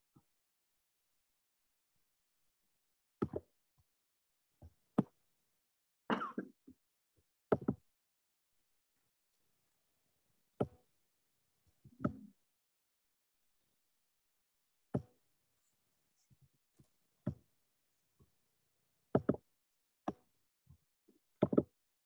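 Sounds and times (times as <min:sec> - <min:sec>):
knocks and clicks of desk items: 0:03.2 - 0:03.5, 0:07.5 - 0:07.8, 0:15.0 - 0:15.2, 0:19.2 - 0:19.4, 0:21.4 - 0:21.7.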